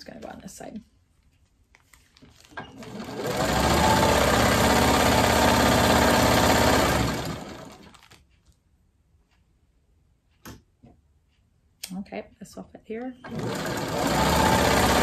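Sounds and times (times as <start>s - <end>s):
sewing machine running: 2.7s - 8.0s, 13.2s - 15.0s.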